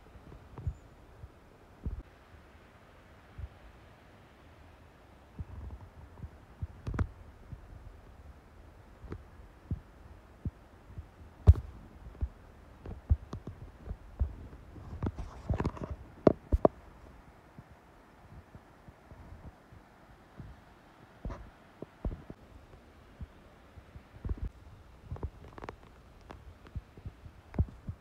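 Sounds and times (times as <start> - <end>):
thumps and clicks on microphone: 1.8 - 2.0, 5.4 - 7.7, 11.0 - 16.8, 21.2 - 22.4, 24.0 - 28.0.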